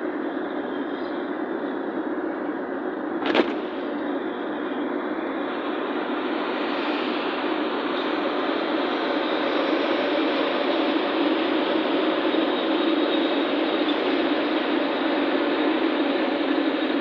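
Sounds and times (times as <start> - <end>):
car cabin road noise: 3.2 - 4.9.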